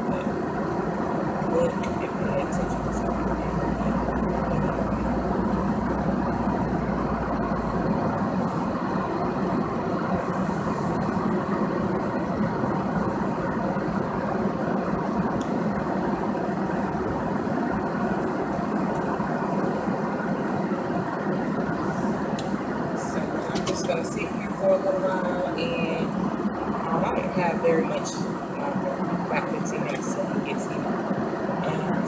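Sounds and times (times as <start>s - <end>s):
deep low rumble: 0.0s - 32.0s
road and engine noise in car: 0.0s - 32.0s.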